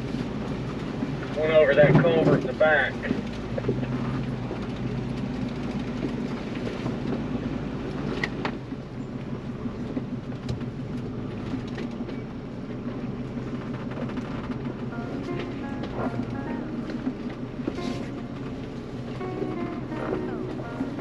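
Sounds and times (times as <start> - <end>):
car engine running: 0.0 - 21.0
knocks and rattles over rocks: 9.8 - 17.8.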